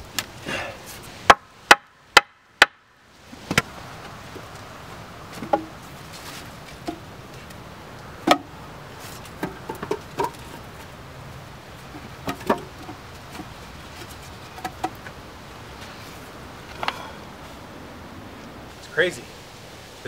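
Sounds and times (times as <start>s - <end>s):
wooden logs knocking: 1.2s - 2.8s, 5.3s - 5.9s, 6.6s - 7.6s, 8.2s - 11.0s, 11.8s - 15.2s.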